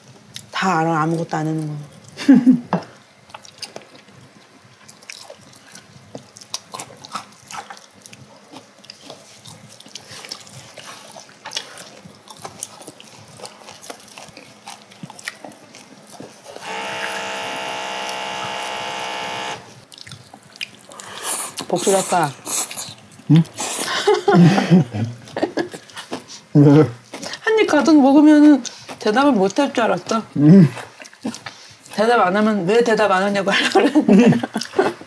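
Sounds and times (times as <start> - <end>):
quiet chewing: 2.8 - 33.0, 33.6 - 35.0
loud buzzing tone: 16.5 - 19.8.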